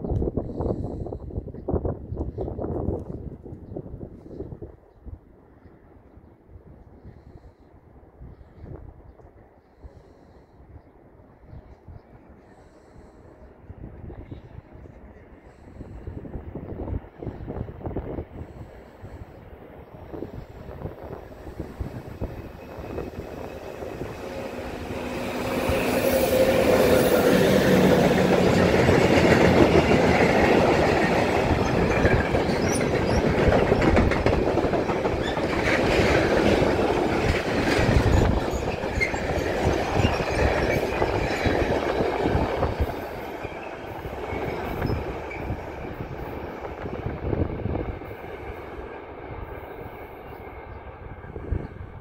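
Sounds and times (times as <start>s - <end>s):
train wheels clattering on rails: 20.8s - 48.8s.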